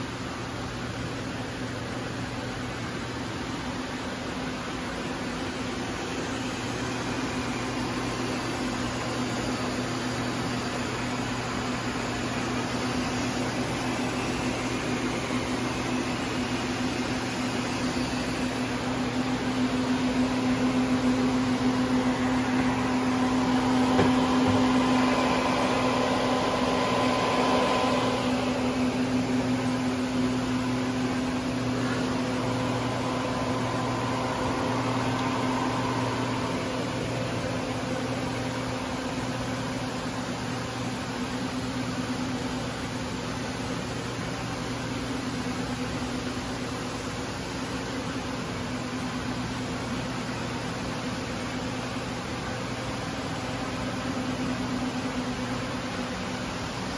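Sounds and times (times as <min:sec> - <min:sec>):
machine motors and fans humming: 0:00.0 - 0:56.9
low electrical drone: 0:02.1 - 0:43.5.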